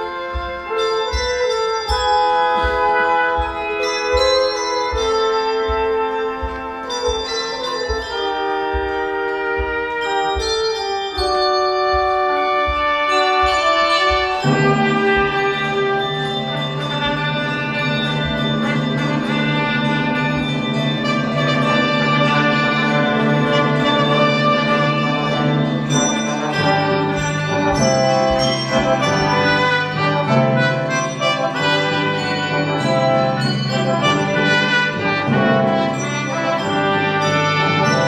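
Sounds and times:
handbell choir ringing: 0.0 - 38.0
brass quartet sustained chords: 11.4 - 38.0.

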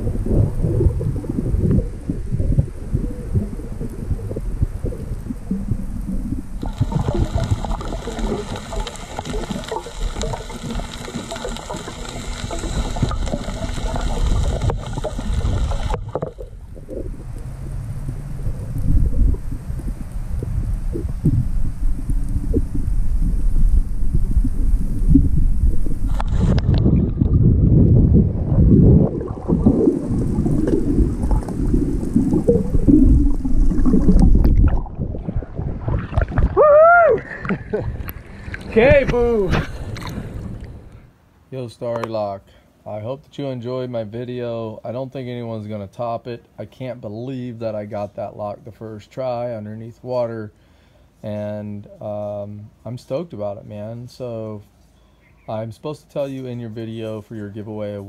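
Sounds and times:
underwater rumble of moving water: 0.0 - 41.1
small crackles and clicks: 0.8 - 27.4, 41.9 - 42.2.

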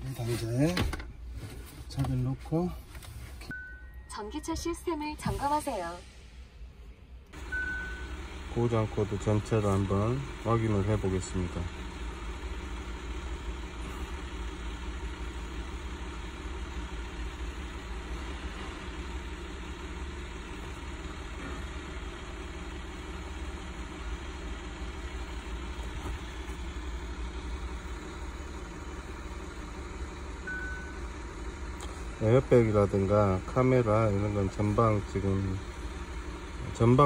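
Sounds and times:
high beep: 3.5 - 5.0, 7.5 - 8.2, 30.4 - 31.1.

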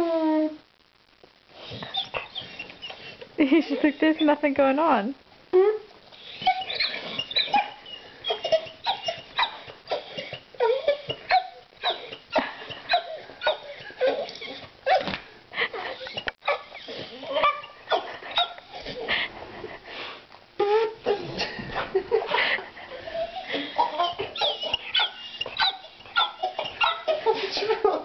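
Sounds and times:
dog whimpering and yipping: 1.6 - 3.2, 6.2 - 15.1, 15.8 - 19.1, 22.9 - 27.5.

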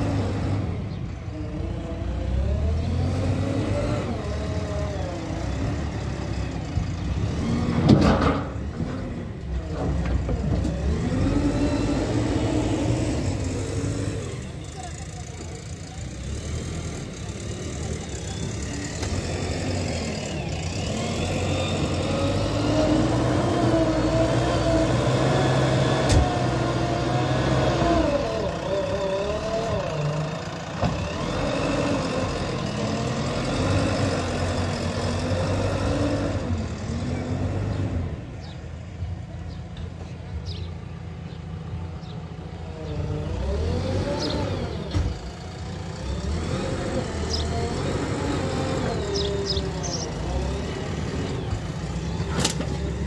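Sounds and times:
diesel engine under hydraulic load: 0.0 - 53.0.

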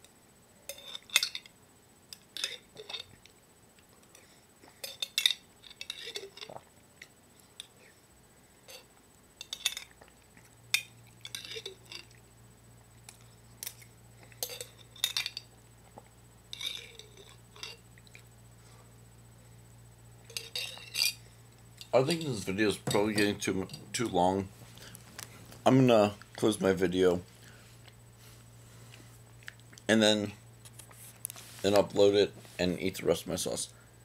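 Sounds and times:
spoon clinking in glass jar: 20.3 - 21.2.

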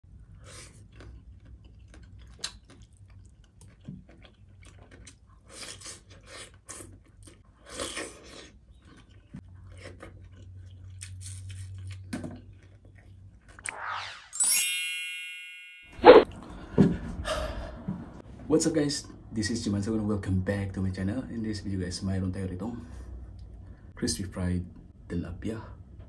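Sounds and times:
person chewing and biting: 0.2 - 13.6
short rising sweep: 13.6 - 15.4.

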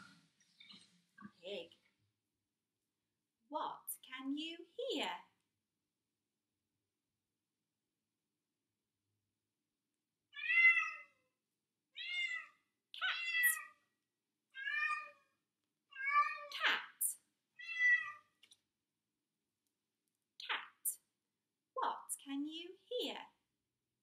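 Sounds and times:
cat meowing: 10.4 - 11.2, 12.0 - 13.7, 14.5 - 15.3, 15.9 - 16.5, 17.6 - 18.3.

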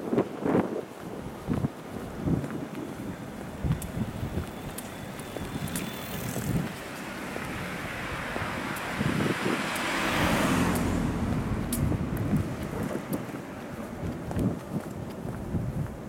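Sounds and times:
car driving past: 4.4 - 14.3.

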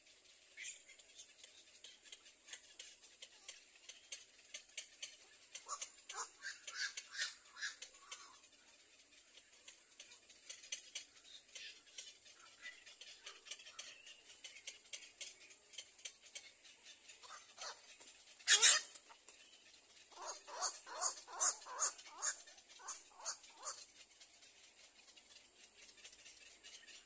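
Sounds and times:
short bird calls: 5.6 - 8.4, 16.8 - 19.2, 20.1 - 23.9.

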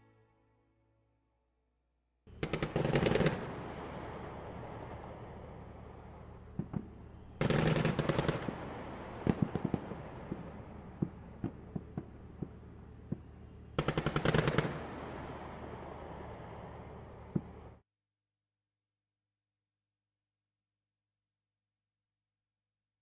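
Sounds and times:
machine-gun fire: 2.4 - 3.5, 7.4 - 9.8, 13.8 - 15.1
steady low rumble: 3.3 - 17.8.

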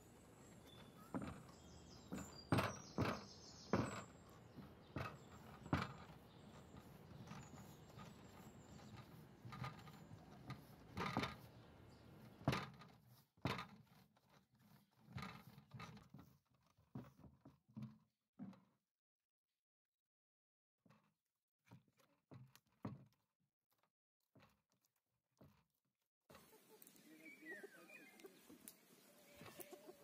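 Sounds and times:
knocks and thuds: 0.7 - 11.5.

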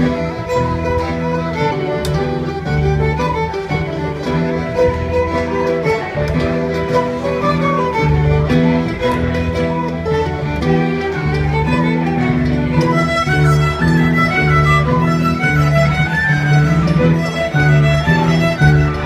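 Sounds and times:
fiddle: 0.0 - 19.0
keyboard: 0.0 - 19.0
upright bass line: 0.0 - 19.0.

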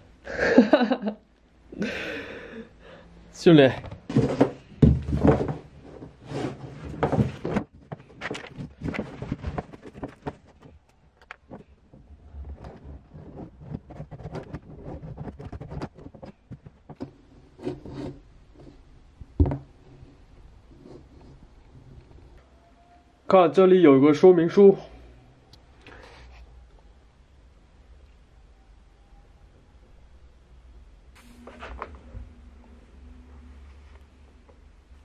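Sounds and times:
cardboard and plastic rustling: 3.7 - 18.2.

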